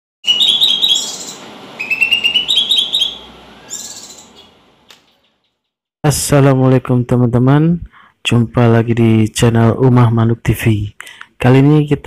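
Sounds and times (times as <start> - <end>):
songbird chirping: 0.2 - 5.7.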